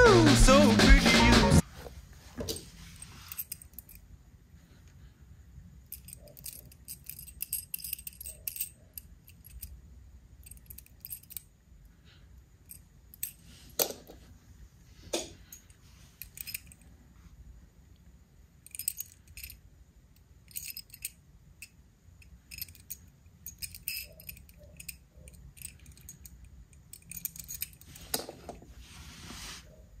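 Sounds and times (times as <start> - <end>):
toy cars clicking and rattling: 5.9 - 9.7, 10.4 - 11.5, 18.6 - 19.6, 20.4 - 28.3.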